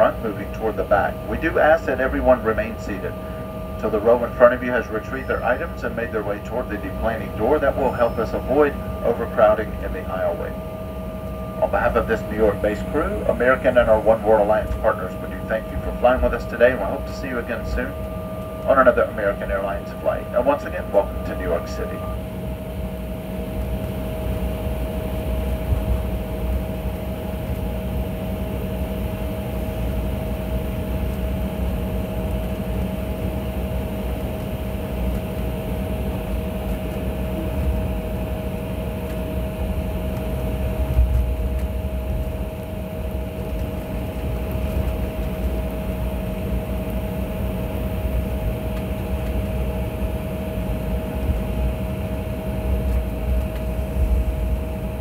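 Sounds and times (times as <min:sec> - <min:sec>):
whining tones: 0:00.0 - 0:24.0
cabin ventilation hum: 0:00.0 - 0:55.0
jet engines idling: 0:00.0 - 0:55.0.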